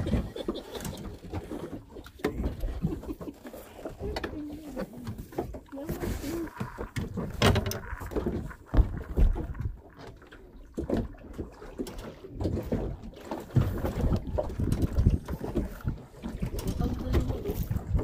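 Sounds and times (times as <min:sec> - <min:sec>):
waves slapping against boat hull: 0:00.0 - 0:18.0
wind buffeting microphone: 0:13.6 - 0:18.0.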